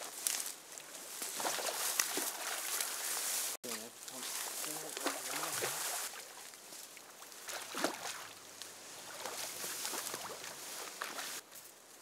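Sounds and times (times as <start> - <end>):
fish splashing in water: 1.3 - 3.1, 4.3 - 11.4.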